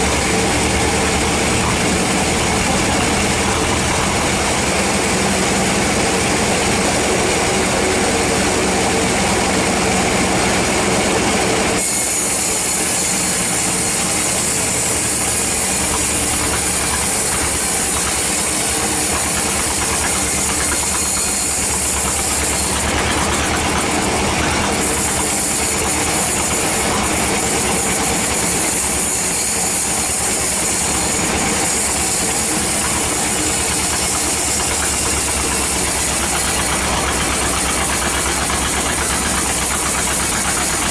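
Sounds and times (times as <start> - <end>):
band saw droning: 0.0 - 40.9
saw blade hissing through log: 0.0 - 40.9.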